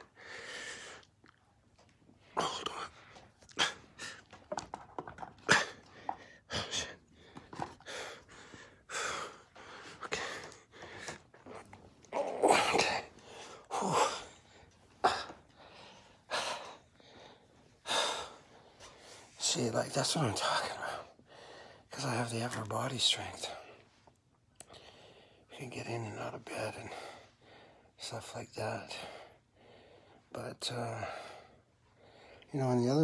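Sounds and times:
man breathing and huffing with effort: 0:00.0 - 0:19.4.

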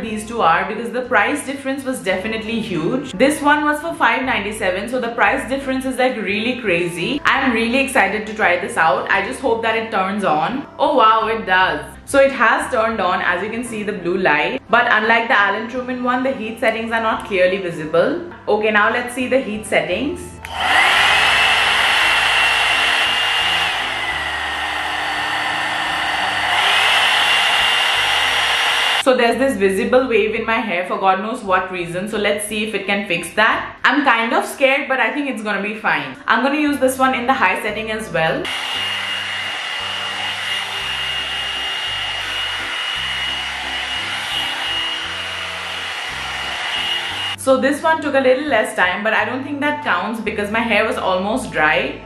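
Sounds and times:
hot air brush motor whining: 0:20.4 - 0:29.1, 0:38.4 - 0:47.4
rush of air: 0:20.6 - 0:29.0.

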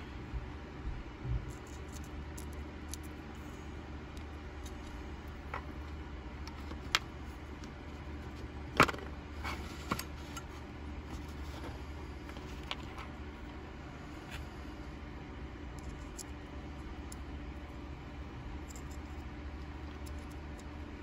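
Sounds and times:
steady low hum: 0:00.0 - 0:21.0
small metal parts clicking: 0:19.8 - 0:20.7.

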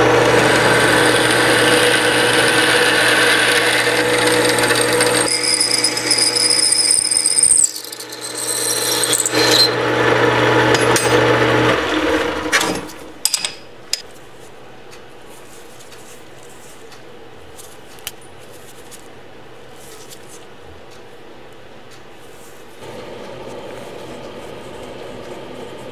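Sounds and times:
drill boring into metal: 0:00.0 - 0:12.3
metal lathe whining: 0:00.0 - 0:12.8.

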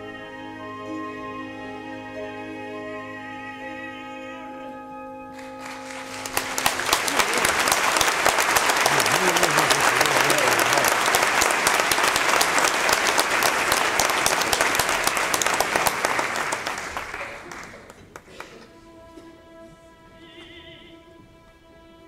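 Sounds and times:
orchestra playing held notes: 0:00.0 - 0:17.2
audience applauding: 0:05.4 - 0:18.7.

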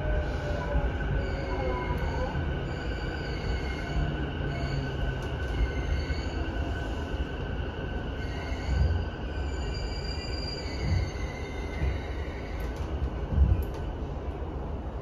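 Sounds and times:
train wheels rumbling on rails: 0:00.0 - 0:15.0.

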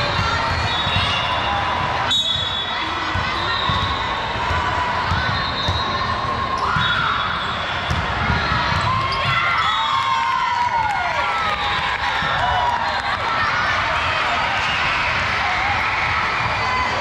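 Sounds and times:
crowd voices in echoing hall: 0:00.0 - 0:17.0
ball bouncing on gym floor: 0:03.1 - 0:05.8, 0:07.8 - 0:09.5.

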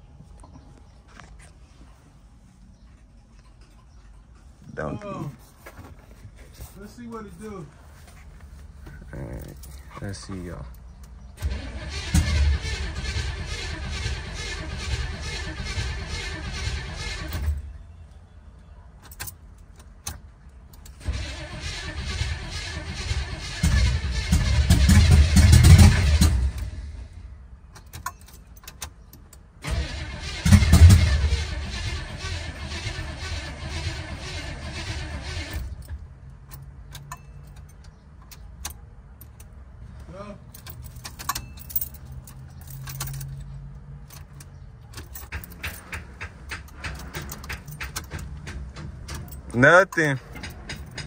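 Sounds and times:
starter cranking engine: 0:11.4 - 0:17.6, 0:21.0 - 0:26.8, 0:29.6 - 0:35.8
keys jangling on ring: 0:40.5 - 0:43.5.

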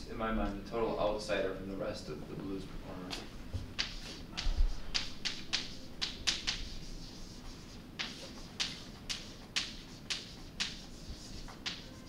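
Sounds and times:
chalk writing on blackboard: 0:03.8 - 0:12.0.

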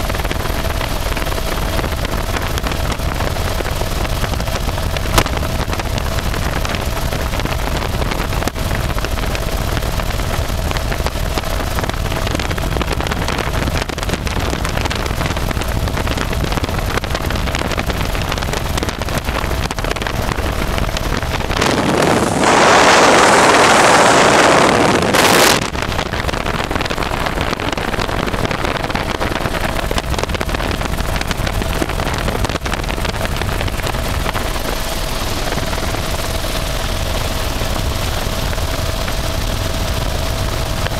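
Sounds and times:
helicopter rotor and engine: 0:00.0 - 0:40.9
wind rushing on microphone: 0:00.0 - 0:40.9
faint steady whine: 0:13.3 - 0:40.9.

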